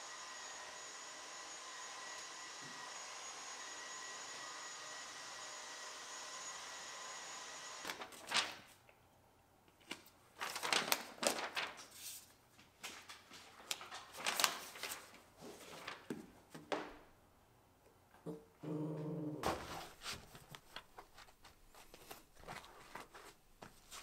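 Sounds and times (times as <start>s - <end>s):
carpet tiles rustling and scraping: 19.4s - 24.0s.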